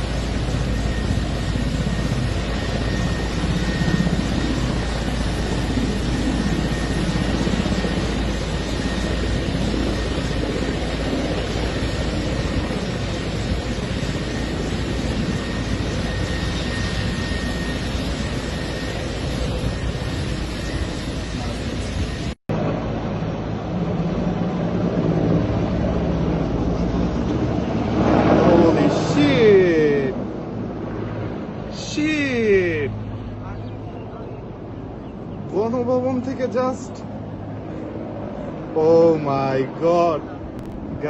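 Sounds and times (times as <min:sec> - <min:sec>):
faint high whine: 0:00.0 - 0:24.2
helicopter engine and rotor roar: 0:00.0 - 0:41.0.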